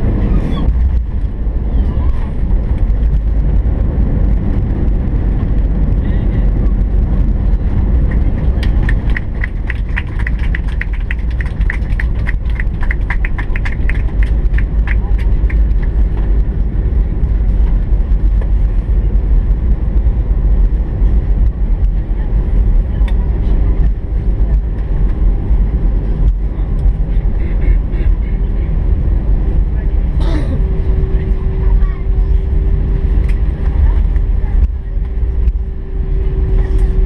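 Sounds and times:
airplane engines and wheels rumbling: 0.0s - 37.0s.

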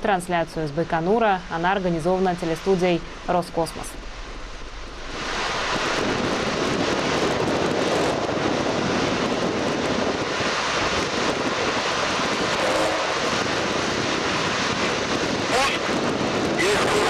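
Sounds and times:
wind on microphone: 3.9s - 17.0s.

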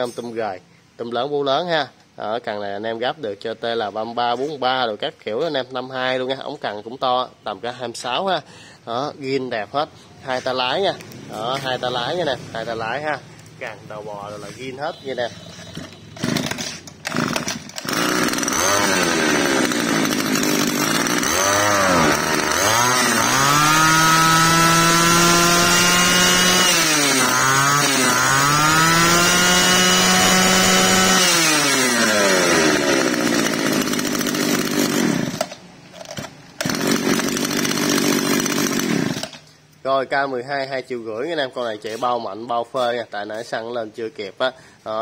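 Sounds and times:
brush cutter engine revving: 10.4s - 39.5s.

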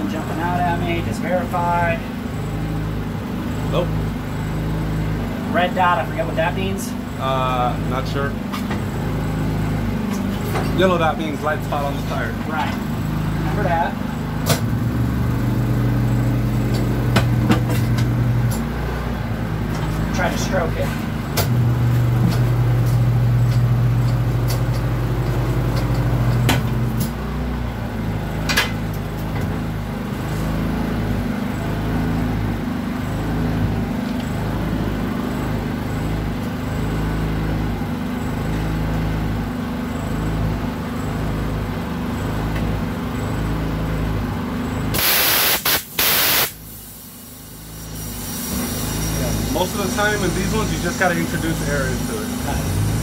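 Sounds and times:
compressed air blasts: 44.9s - 50.0s.

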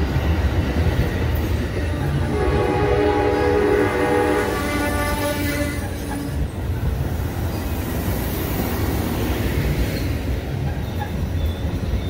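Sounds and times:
train wheels rumbling on rail: 0.0s - 12.0s
train horn blast: 2.0s - 6.4s.

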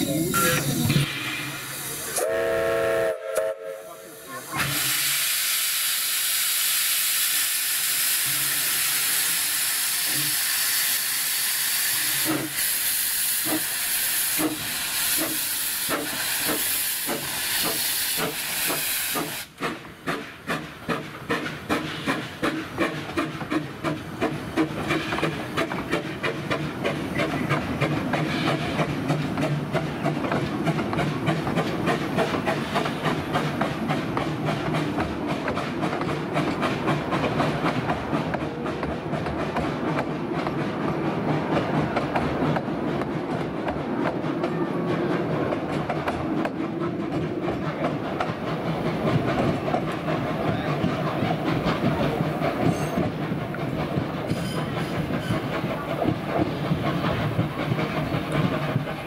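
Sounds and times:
steam hissing: 0.0s - 38.7s, 47.8s - 59.0s
steam locomotive whistle blast: 2.1s - 5.3s
locomotive chuffing: 8.2s - 59.0s.

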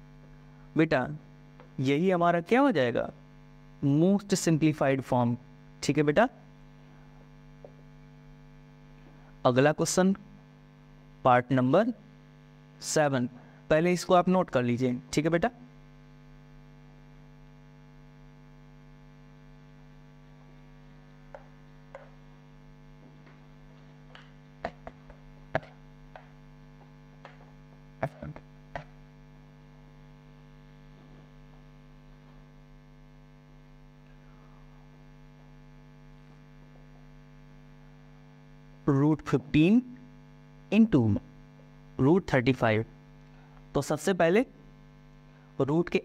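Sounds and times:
electrical mains hum: 0.0s - 46.0s
marker knocking on whiteboard: 21.3s - 22.2s, 24.1s - 29.0s.

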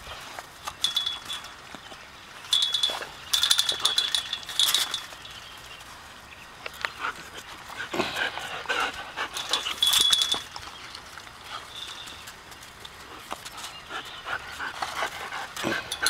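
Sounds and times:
wire fence rattling: 0.7s - 1.6s, 2.4s - 5.5s, 9.1s - 10.7s
dogs panting and whimpering: 6.9s - 16.0s.

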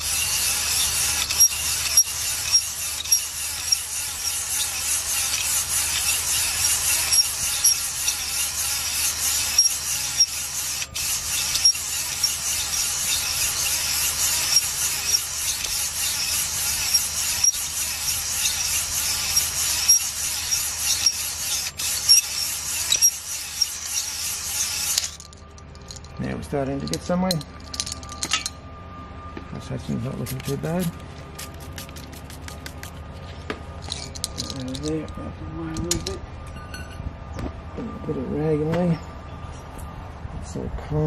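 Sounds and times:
hone stones rasping on cast iron: 0.0s - 26.1s.

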